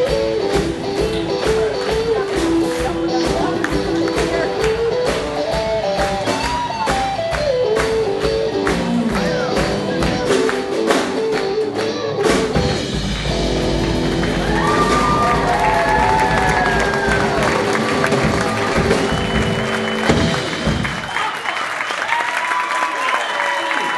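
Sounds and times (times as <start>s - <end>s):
electric guitar melody: 0.0s - 20.8s
steady drumbeat: 0.0s - 21.4s
loud drum hit: 12.3s - 21.2s.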